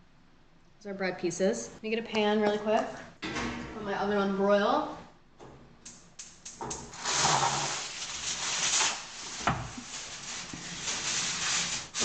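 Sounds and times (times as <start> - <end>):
plastic bag rustling: 6.9 - 12.0.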